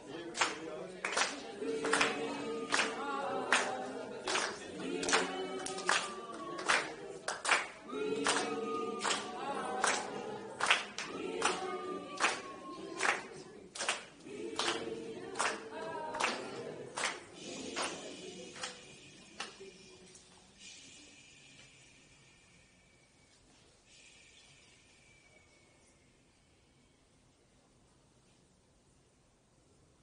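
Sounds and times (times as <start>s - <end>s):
group of voices singing: 0.0s - 19.7s
sharp claps: 0.3s - 19.6s.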